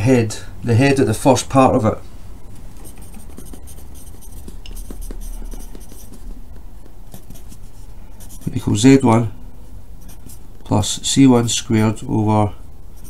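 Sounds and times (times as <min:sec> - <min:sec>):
pencil writing on paper: 0:02.7 - 0:08.7, 0:10.0 - 0:10.4.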